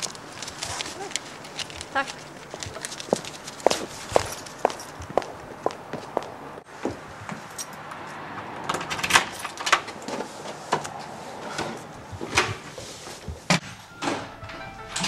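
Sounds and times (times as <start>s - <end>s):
footsteps: 0.0s - 7.4s.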